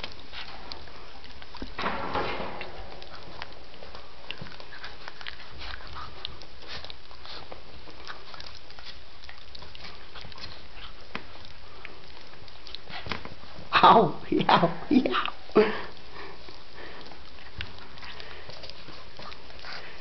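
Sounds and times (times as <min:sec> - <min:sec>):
puppies chewing and snuffling: 0:00.0 - 0:20.0.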